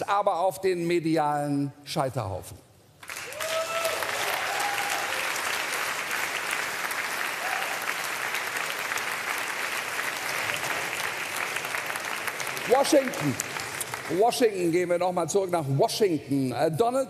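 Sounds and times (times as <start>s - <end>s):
audience applauding: 3.0s - 14.8s.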